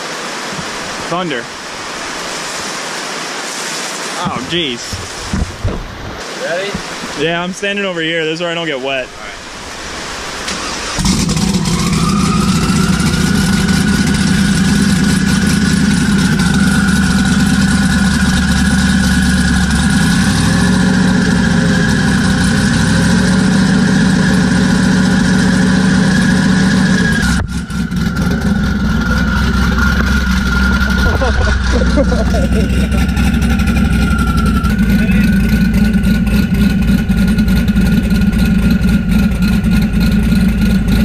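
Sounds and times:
rapid exhaust crackle: 0:09.0 - 0:41.0
turbo whine: 0:09.0 - 0:41.0
car engine on rev limiter: 0:09.8 - 0:41.0.

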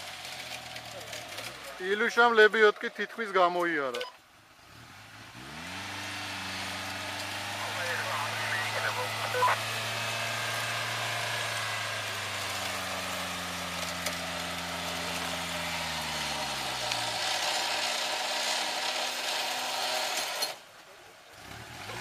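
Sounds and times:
vehicle engine running: 0:00.0 - 0:02.5, 0:04.5 - 0:20.0, 0:20.9 - 0:22.0
electric winch humming: 0:05.6 - 0:20.6.

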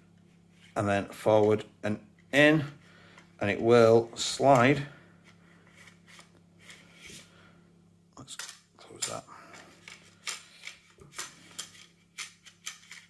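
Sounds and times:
gun parts scraping: 0:08.4 - 0:13.0.

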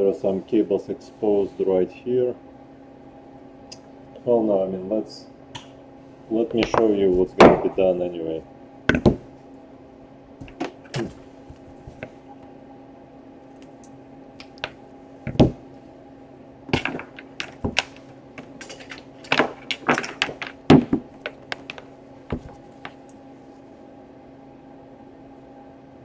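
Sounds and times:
faint steady hum: 0:00.0 - 0:26.0
objects knocking on a table: 0:16.7 - 0:23.0.

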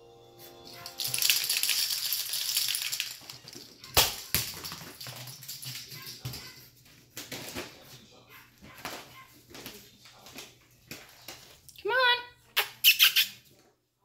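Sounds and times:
rustling and scuffling: 0:00.4 - 0:11.7
plastic bag crinkling: 0:01.0 - 0:05.4.

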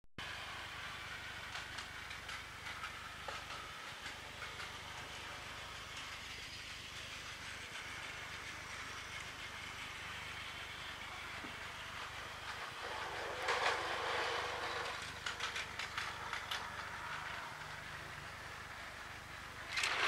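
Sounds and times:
toy train motor whir: 0:00.2 - 0:20.0.

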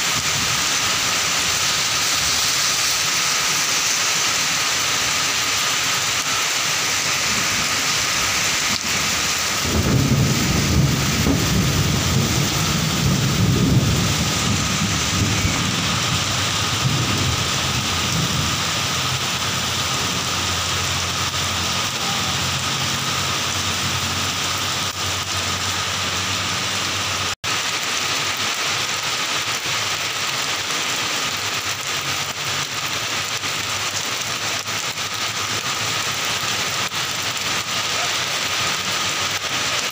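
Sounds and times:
heavy rain falling: 0:00.0 - 0:39.9
low rumble of thunder: 0:07.3 - 0:20.8.

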